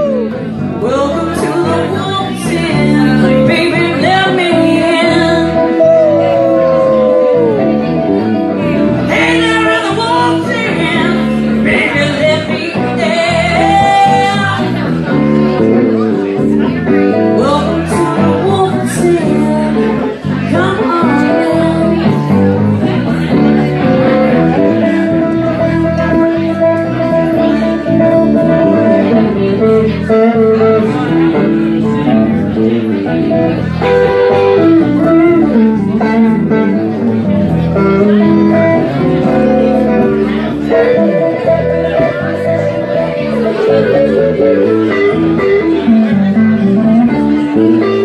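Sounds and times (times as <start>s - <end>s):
woman singing into a microphone: 0.0s - 7.1s, 9.0s - 15.6s, 17.4s - 22.6s
guitar accompaniment: 0.0s - 48.0s
live band playing: 0.0s - 48.0s.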